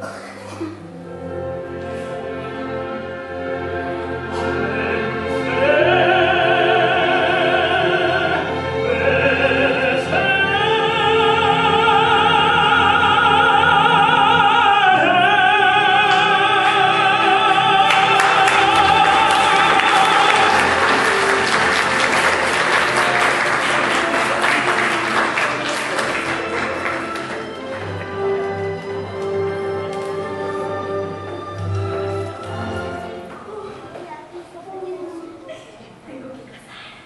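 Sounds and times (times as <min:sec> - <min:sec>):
man singing operatically: 0:04.4 - 0:28.6
instrumental accompaniment: 0:15.2 - 0:33.7.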